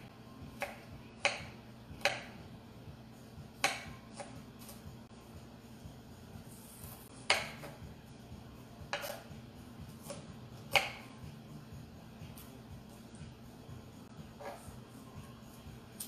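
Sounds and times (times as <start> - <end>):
knife chopping on wooden board: 0.6 - 2.4, 3.6 - 4.8, 7.2 - 7.8, 8.9 - 9.3, 9.9 - 11.2.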